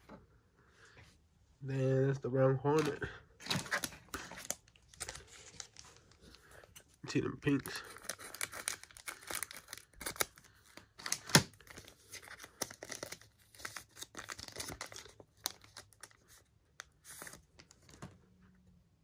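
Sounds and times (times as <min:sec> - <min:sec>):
foil wrapper crinkling and tearing: 0:07.4 - 0:16.4.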